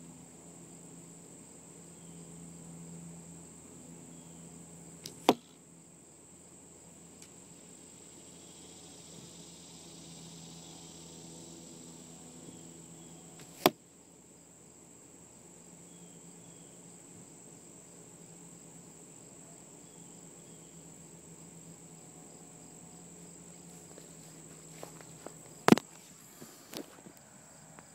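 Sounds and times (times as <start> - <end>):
insects buzzing: 0.0 - 27.9
arrow hitting foam target: 5.0 - 5.6, 13.4 - 13.8
sharp knock: 5.1 - 5.5.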